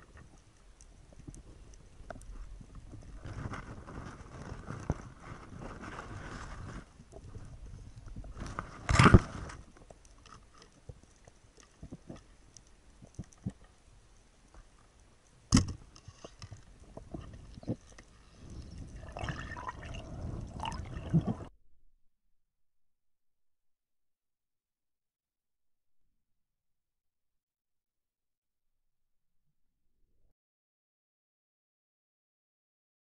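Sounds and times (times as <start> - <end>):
bubbling: 16.3 - 21.5
underwater gurgling water: 16.4 - 21.5.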